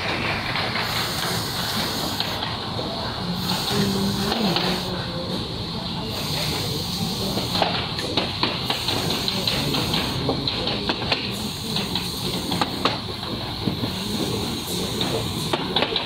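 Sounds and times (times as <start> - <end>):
sharp machine clicks and clacks: 0.0 - 2.7, 7.3 - 16.0
machine hiss: 0.0 - 16.0.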